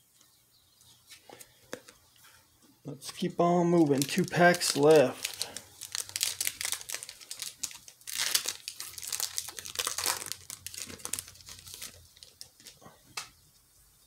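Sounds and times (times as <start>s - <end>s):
foil wrapper crinkling and tearing: 3.8s - 12.8s.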